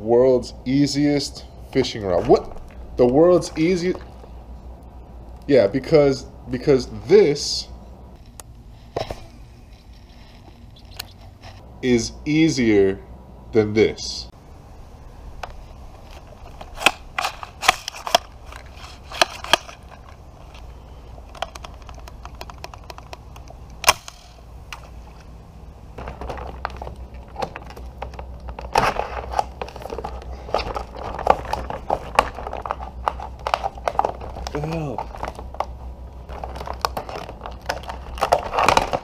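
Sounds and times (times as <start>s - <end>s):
plastic clicks and snaps: 21.3s - 24.9s
plastic packaging crinkling: 26.0s - 39.0s.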